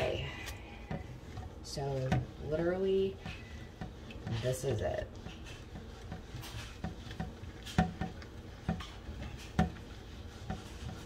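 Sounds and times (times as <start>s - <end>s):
dishcloth scrubbing a pan: 0.0s - 11.0s.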